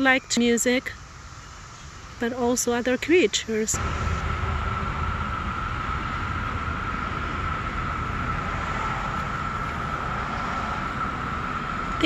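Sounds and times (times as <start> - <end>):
cicadas high drone: 0.0 - 12.0
low rumble: 3.7 - 12.0.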